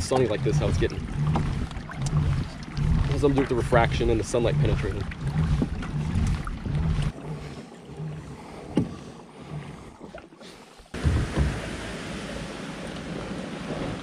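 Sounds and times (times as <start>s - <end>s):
wind rumbling on microphone: 0.0s - 7.6s, 10.9s - 14.0s
water slapping against hull: 0.0s - 14.0s.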